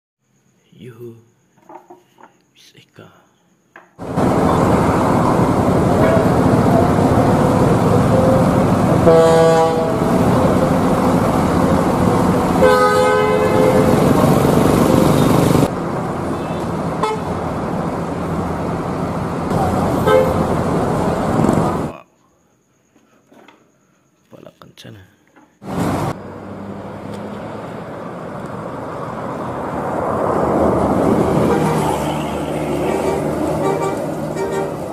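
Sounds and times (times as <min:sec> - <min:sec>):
street traffic: 0:03.8 - 0:22.1, 0:25.4 - 0:34.9
bus horn: 0:04.0 - 0:11.8, 0:12.5 - 0:17.5, 0:19.5 - 0:20.7, 0:31.3 - 0:34.9
bus engines: 0:04.0 - 0:22.0, 0:25.6 - 0:34.9.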